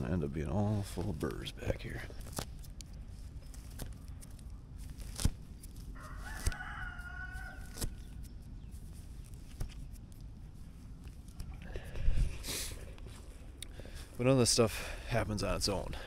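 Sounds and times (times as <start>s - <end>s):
clothing and brush rustling: 1.0s - 14.5s
rooster crowing: 6.0s - 7.9s.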